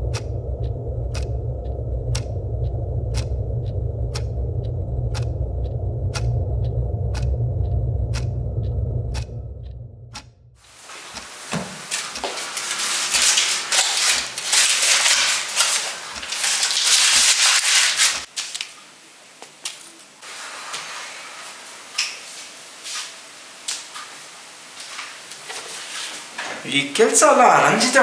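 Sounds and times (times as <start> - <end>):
paper rustling and crumpling: 11.9 - 18.7.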